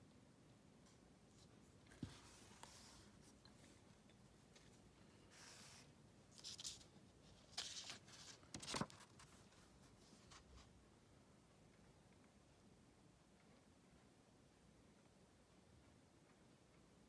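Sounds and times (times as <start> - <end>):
paper card rustling: 4.6 - 10.7.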